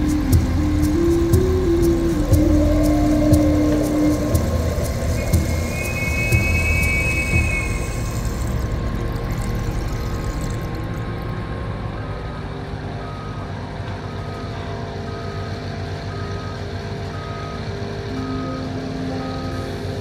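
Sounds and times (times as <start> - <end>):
diesel machinery rumbling: 0.0 - 20.0
motion alarm beeping: 3.3 - 8.6, 13.0 - 20.0.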